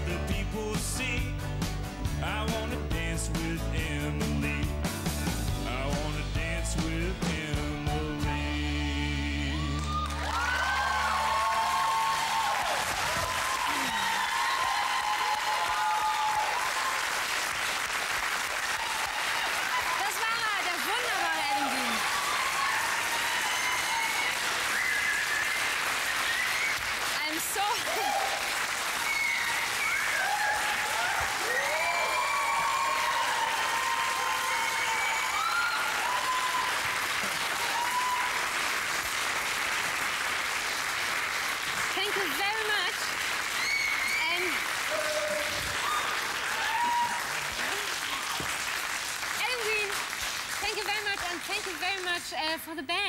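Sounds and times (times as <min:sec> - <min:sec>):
audience applauding: 0:09.3 - 0:52.5
audience cheering: 0:09.4 - 0:50.0.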